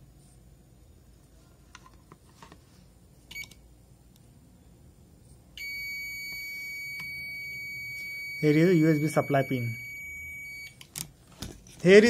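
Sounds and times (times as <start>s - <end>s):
multimeter beeping: 3.3s - 3.6s, 5.6s - 10.9s.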